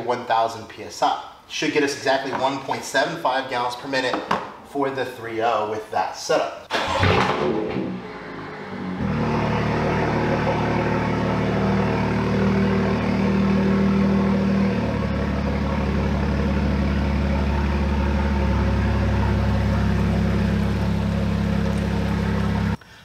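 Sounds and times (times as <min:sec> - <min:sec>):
car engine running: 0:06.9 - 0:22.8.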